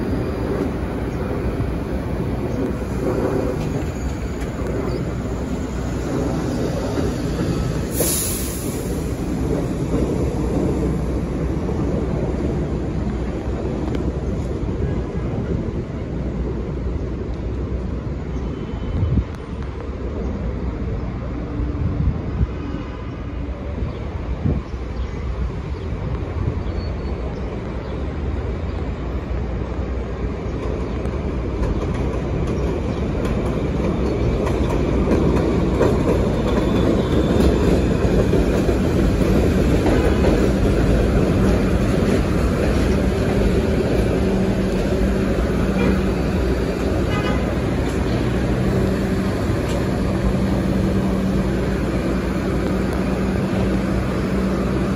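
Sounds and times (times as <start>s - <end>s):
subway train rolling in: 0.0s - 54.9s
wheels clattering on rails: 30.4s - 54.9s.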